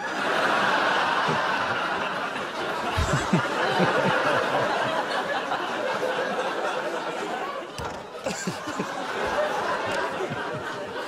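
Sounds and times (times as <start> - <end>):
studio audience laughing: 0.0 - 11.0
man chuckling: 2.8 - 4.8, 7.8 - 11.0.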